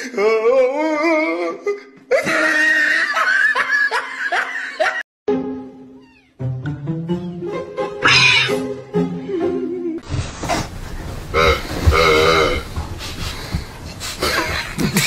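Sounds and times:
person laughing: 0:02.1 - 0:05.0, 0:14.2 - 0:15.0
background music: 0:05.3 - 0:10.0.

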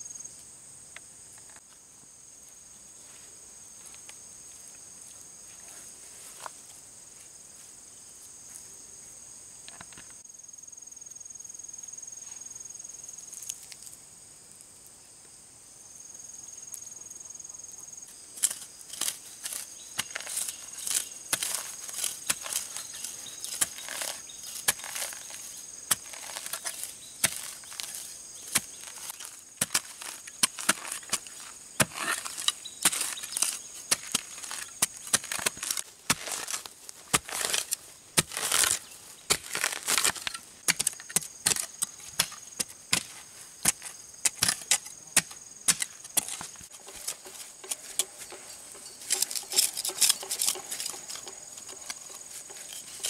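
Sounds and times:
high insect buzz: 0:07.5 - 0:42.6
metal tools chopping into soil: 0:18.4 - 0:53.0.

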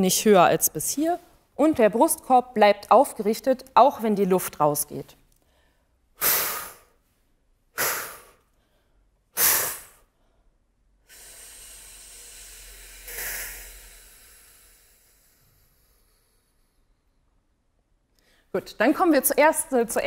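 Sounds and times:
woman taking sharp breaths: 0:05.4 - 0:07.0, 0:07.8 - 0:17.2, 0:18.2 - 0:18.5
woman hissing exhalation: 0:06.2 - 0:07.0, 0:07.8 - 0:08.5, 0:09.4 - 0:10.2, 0:11.0 - 0:16.7.

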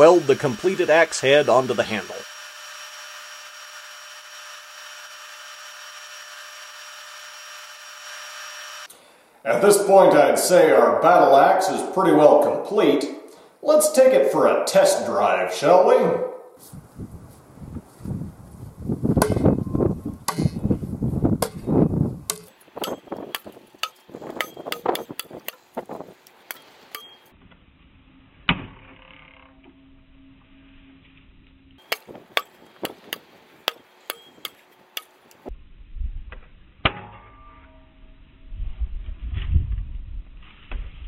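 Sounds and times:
axe chopping wooden post: 0:19.2 - 0:19.5, 0:20.3 - 0:20.6, 0:21.4 - 0:25.6, 0:31.8 - 0:35.2.

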